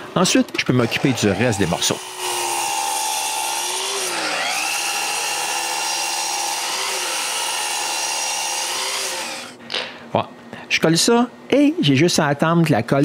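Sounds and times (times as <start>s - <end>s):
miter saw whining while cutting: 0.6s - 9.6s.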